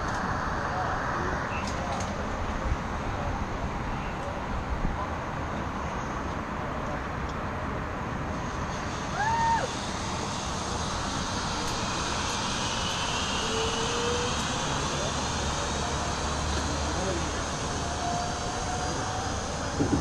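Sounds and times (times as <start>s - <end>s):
wind on microphone: 19.6s - 20.0s.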